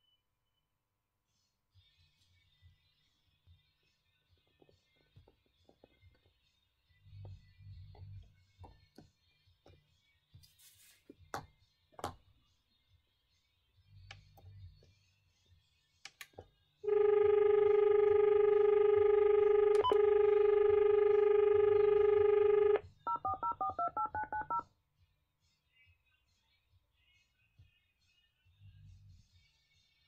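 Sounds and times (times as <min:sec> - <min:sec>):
dial tone: 0:16.9 - 0:24.6
touch-tone dialling: 0:16.9 - 0:24.6.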